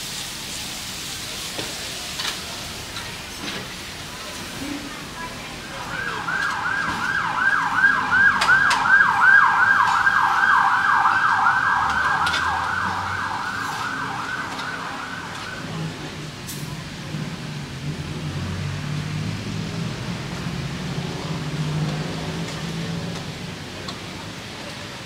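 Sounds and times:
emergency siren yelping: 5.7s - 16.0s.

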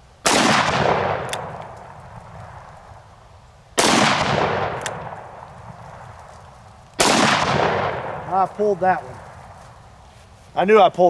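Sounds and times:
sharp click: 1.2s - 1.8s, 4.8s - 5.0s.

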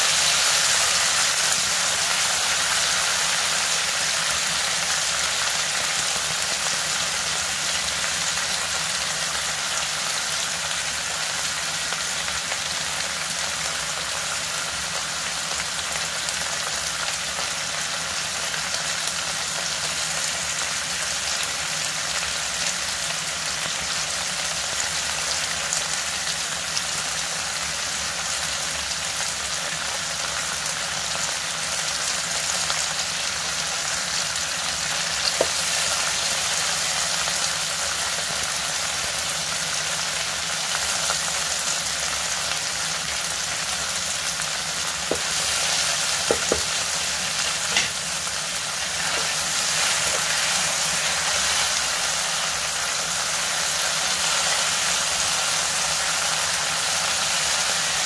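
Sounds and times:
meat sizzling in a frying pan: 0.0s - 58.0s
tongs clicking against pan: 47.7s - 48.0s.

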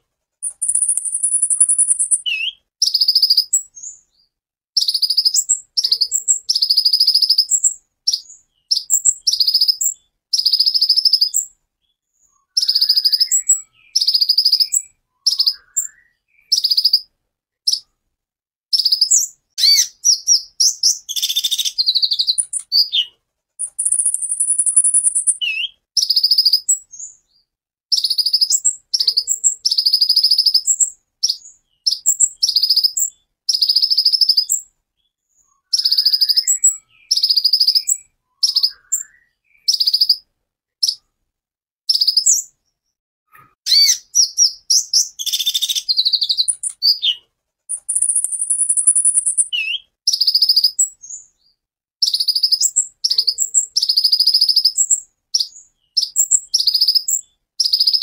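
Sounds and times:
thin high bird whistle: 0.4s - 3.7s, 18.8s - 26.7s, 43.7s - 50.8s
bird singing sharp notes: 0.4s - 4.0s, 18.7s - 27.1s, 43.4s - 51.2s.

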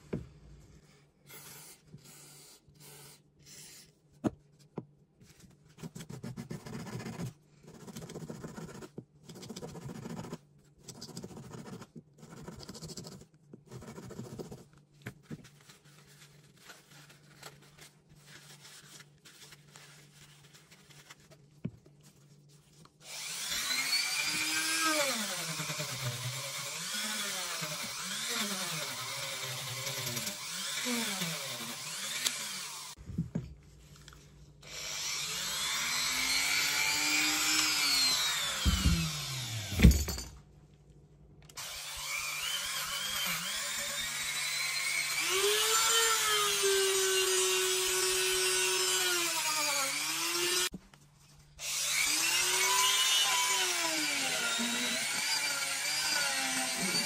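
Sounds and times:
rotary tool whining: 34.7s - 40.2s.

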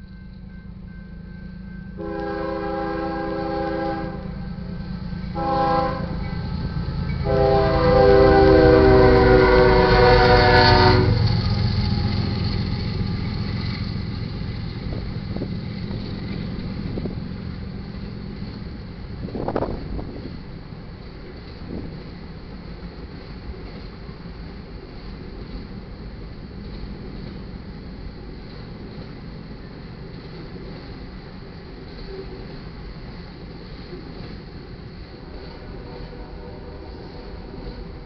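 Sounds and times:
rail cars rolling and clattering: 0.0s - 38.0s
locomotive air horn blasts: 2.0s - 4.5s, 5.3s - 11.3s, 35.4s - 37.6s.

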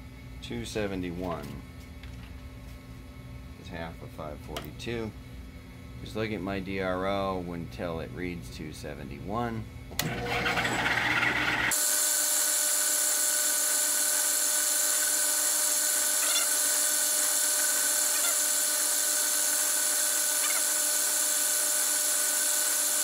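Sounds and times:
drill motor whine: 10.0s - 23.0s.

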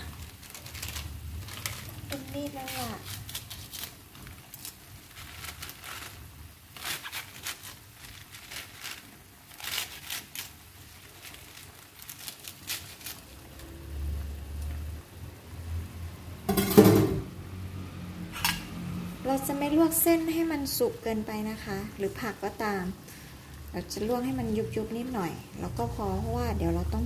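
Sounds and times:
cabbage leaves tearing crisply: 0.0s - 14.3s
water boiling: 0.0s - 27.0s.

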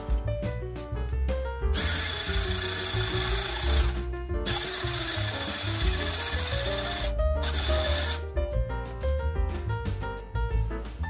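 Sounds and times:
background music: 0.0s - 11.0s
electric whisk whining: 1.8s - 8.2s.

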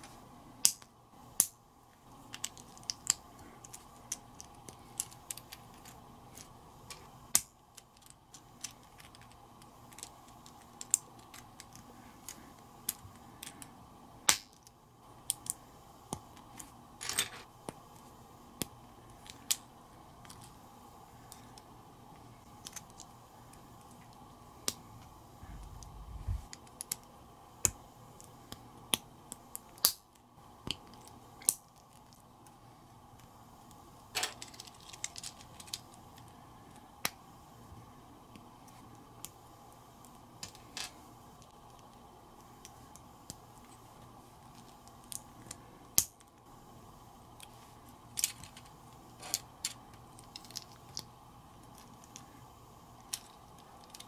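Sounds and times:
low bump: 25.4s - 26.5s.

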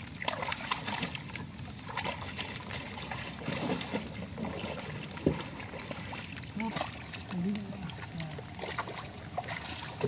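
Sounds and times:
sharp water splash: 0.0s - 7.3s
water sloshing and trickling: 0.0s - 10.0s.

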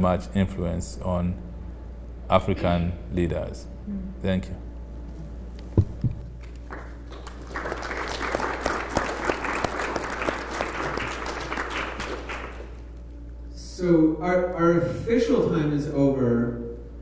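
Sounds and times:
low thumps: 5.7s - 6.4s
audience applauding: 6.4s - 13.1s.

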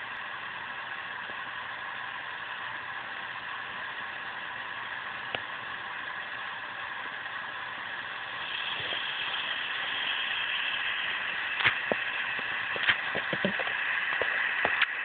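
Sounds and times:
small electric motor whirring: 8.3s - 15.0s.

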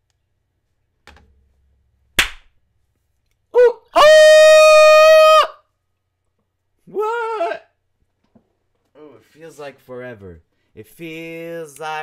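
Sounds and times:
sharp slap or click: 2.2s - 2.5s.

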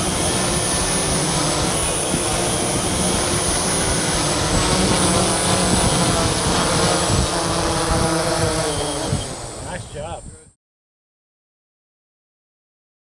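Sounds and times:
drone rotors buzzing: 0.0s - 10.6s.

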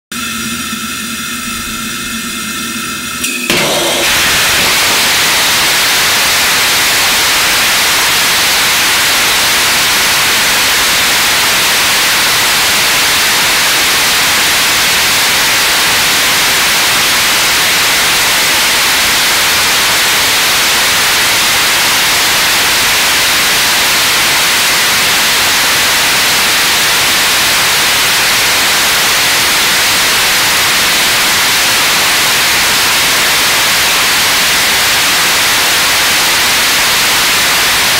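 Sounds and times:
rocket engine firing: 0.2s - 10.3s.

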